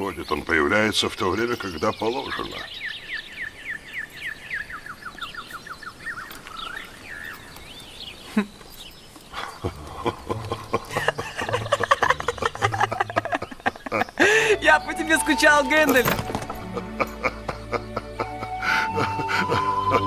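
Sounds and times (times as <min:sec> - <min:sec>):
songbird trilling chirps: 0:00.0 - 0:17.4
people laughing: 0:09.4 - 0:14.8, 0:16.5 - 0:20.0.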